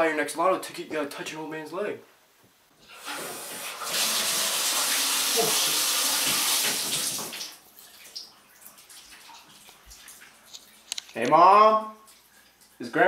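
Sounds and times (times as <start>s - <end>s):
tap water running into tub: 2.8s - 11.0s, 12.0s - 12.8s.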